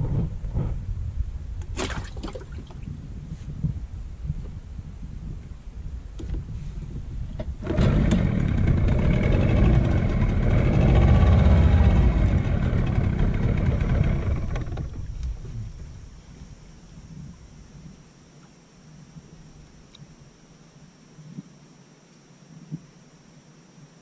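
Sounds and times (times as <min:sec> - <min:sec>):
boat engine running: 0:07.4 - 0:16.0.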